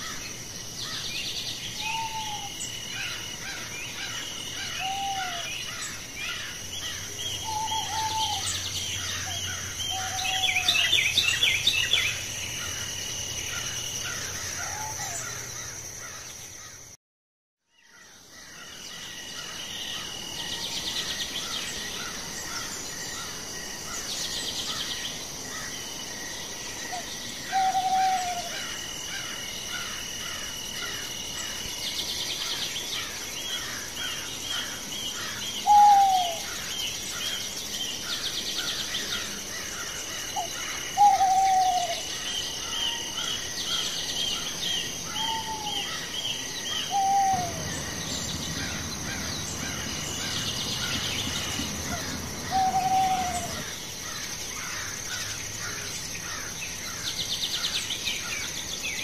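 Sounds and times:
short falling bird calls: 42.6 - 54.9.

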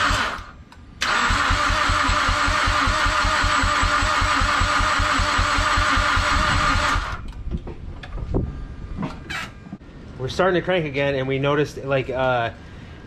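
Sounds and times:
starter motor whine: 0.0 - 7.3
engine cranking without starting: 0.0 - 7.4.

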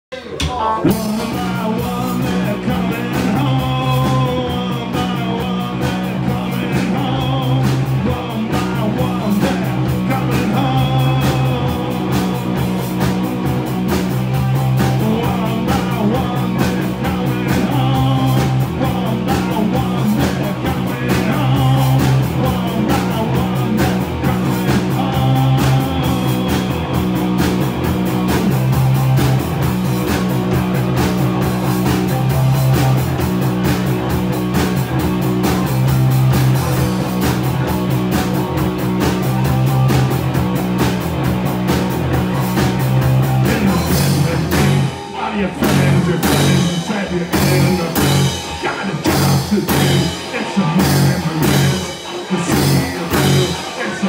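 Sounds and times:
man singing: 0.1 - 13.6, 14.4 - 29.2, 42.8 - 54.0
drum kit beat: 0.2 - 54.0
electric guitar: 0.2 - 54.0
electric bass: 0.3 - 54.0.

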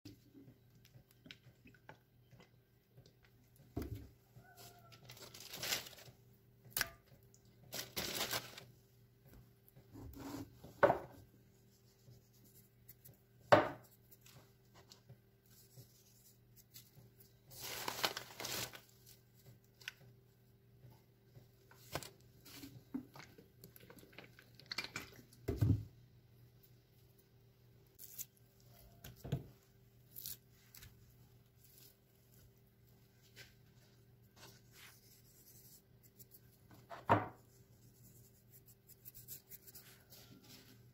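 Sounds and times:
paper and packaging crinkling: 4.4 - 6.2, 7.7 - 8.7, 17.5 - 19.9.

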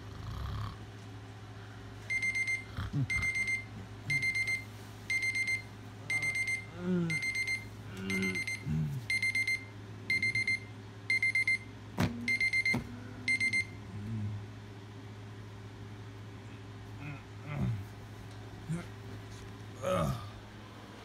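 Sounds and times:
electronic alarm beeping: 2.1 - 11.7, 12.3 - 13.8.

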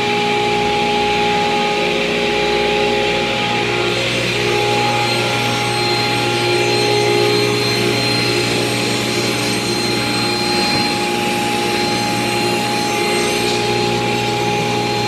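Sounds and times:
dust collector: 0.0 - 15.0
table saw hum and whine: 0.0 - 15.0
saw crosscutting board: 3.7 - 15.0.

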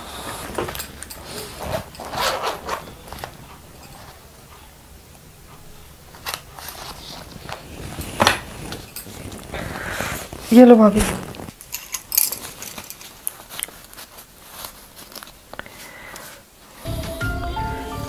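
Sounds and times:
purse rustling and clicking: 0.3 - 4.7, 6.1 - 9.6, 10.3 - 15.6.

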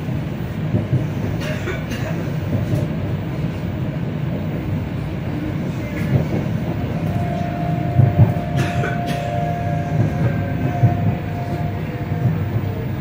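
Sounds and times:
train low rumble: 0.0 - 13.0
steady whine: 7.0 - 13.0.

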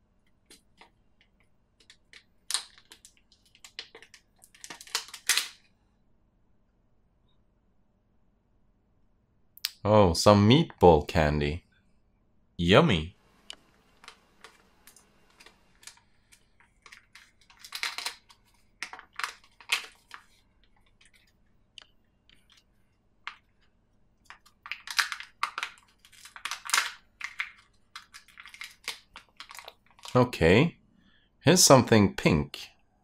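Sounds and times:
plastic capsule clicking: 1.8 - 5.6.

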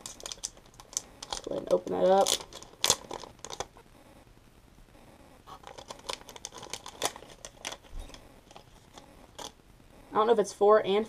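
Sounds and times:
paper packaging crinkling: 0.0 - 3.8, 5.5 - 9.6.

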